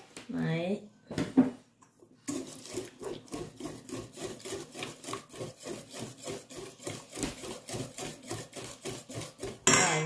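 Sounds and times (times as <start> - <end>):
whisk beating batter in steel bowl: 2.2 - 10.0.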